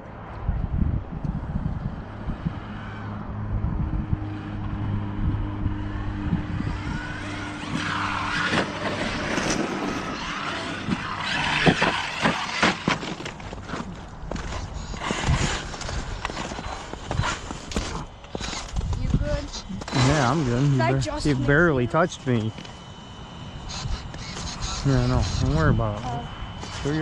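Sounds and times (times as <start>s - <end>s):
electric motor whining: 1.2s - 27.0s
tyres crunching in snow: 7.0s - 22.8s.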